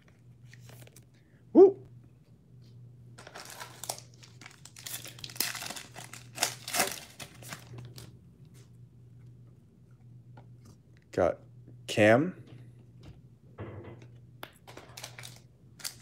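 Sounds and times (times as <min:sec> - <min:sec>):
wrapper crinkling and tearing: 0:03.2 - 0:08.1, 0:14.6 - 0:16.0.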